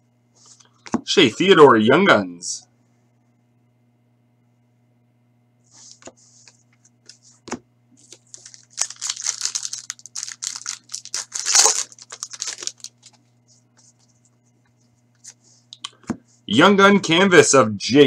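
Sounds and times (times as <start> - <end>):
foil wrapper crinkling and tearing: 8.0 - 13.2.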